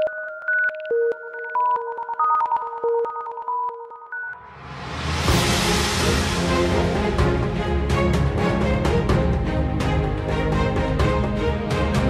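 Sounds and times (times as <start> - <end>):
theme music with deep bass: 4.4 - 12.0.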